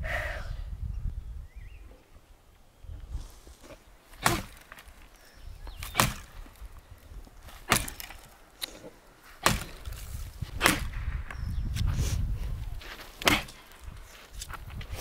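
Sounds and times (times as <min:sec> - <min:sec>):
axe chopping wood: 0:04.1 - 0:05.0, 0:05.8 - 0:06.6, 0:07.5 - 0:08.7, 0:09.4 - 0:11.9, 0:13.2 - 0:13.8.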